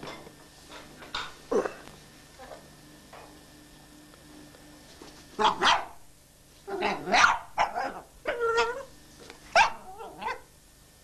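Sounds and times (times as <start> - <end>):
dog barking: 5.4 - 6.0, 6.7 - 8.8, 9.5 - 10.5.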